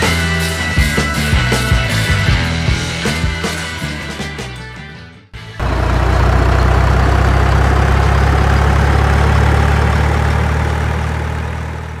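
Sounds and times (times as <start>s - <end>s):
truck engine idling: 5.4s - 12.0s.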